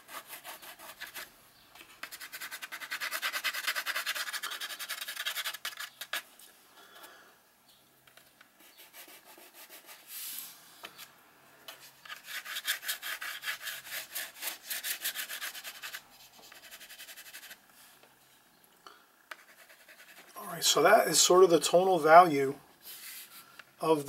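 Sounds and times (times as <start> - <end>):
grease pencil scribbling on paper: 0.0 - 1.3, 2.0 - 6.2, 8.6 - 10.1, 12.1 - 17.6, 19.3 - 20.4.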